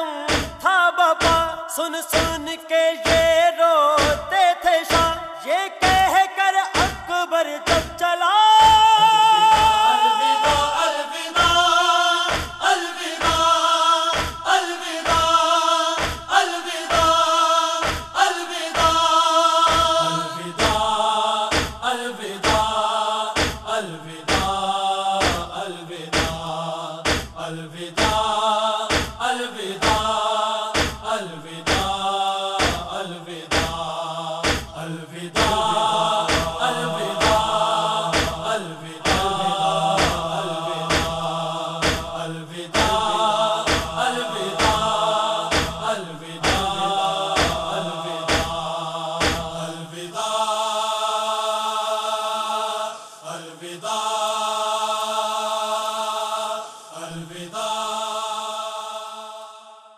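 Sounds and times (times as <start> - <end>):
men singing a lament: 0.0 - 59.9
chest-beating thumps: 0.3 - 0.6, 1.2 - 1.5, 2.2 - 2.5, 3.1 - 3.4, 4.0 - 4.3, 6.8 - 7.1, 7.7 - 8.0, 8.6 - 10.8, 12.3 - 12.6, 13.2 - 14.5, 16.0 - 17.2, 17.8 - 18.2, 19.7 - 20.9, 21.5 - 21.8, 22.4 - 22.7, 23.4 - 23.7, 24.3 - 24.6, 25.2 - 25.6, 26.2 - 27.4, 28.0 - 29.2, 29.8 - 30.1, 30.8 - 31.1, 31.7 - 32.0, 32.6 - 33.8, 34.4 - 34.8, 35.4 - 48.6, 49.2 - 49.6.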